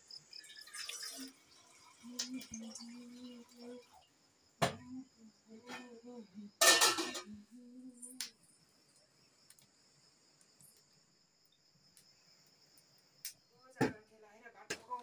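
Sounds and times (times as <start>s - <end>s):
crickets chirring: 0.0s - 15.0s
metal utensils clattering: 6.6s - 7.3s.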